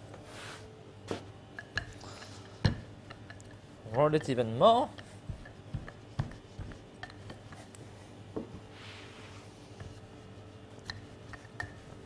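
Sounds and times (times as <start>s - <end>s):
rolling pin rubbing on pastry: 3.0s - 12.0s.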